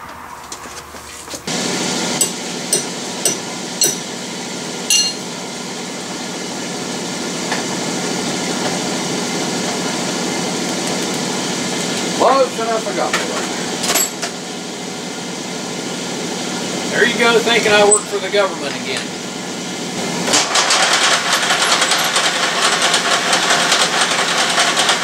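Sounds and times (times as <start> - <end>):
metal lathe running: 1.5 - 15.0, 16.4 - 25.0
tools clinking on metal: 2.2 - 4.0, 4.9 - 5.2.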